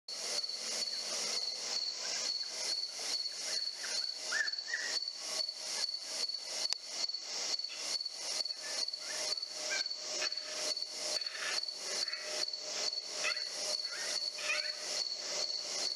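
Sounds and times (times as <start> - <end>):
crickets and katydids rasping: 0.1 - 15.9
high-pitched insect trill: 0.1 - 15.9.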